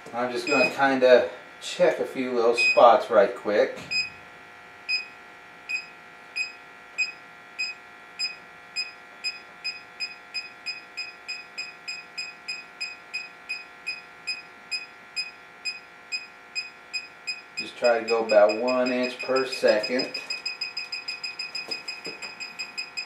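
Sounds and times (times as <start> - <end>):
gas detector beeping: 0.4 - 0.8, 2.6 - 2.8, 4.9 - 5.1, 5.7 - 23.0.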